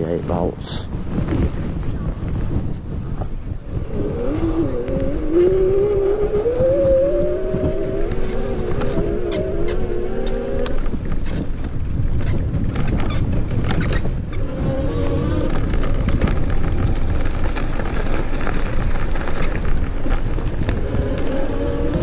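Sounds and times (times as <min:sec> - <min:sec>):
wind rushing over microphone: 0:00.0 - 0:22.0
tyres on gravel: 0:01.2 - 0:22.0
electric motor whine: 0:03.6 - 0:11.0.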